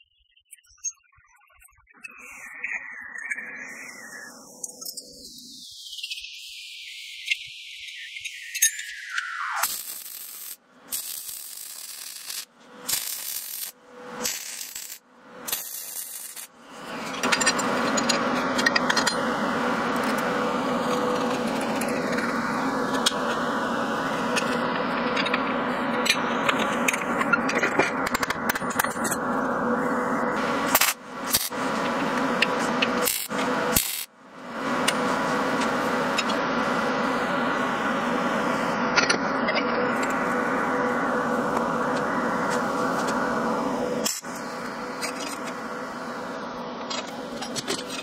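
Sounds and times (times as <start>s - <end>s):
steady hum: 2.2s - 5.8s, 6.4s - 48.0s
arc welding crackling: 9.6s - 16.6s, 30.4s - 32.2s, 33.0s - 34.1s.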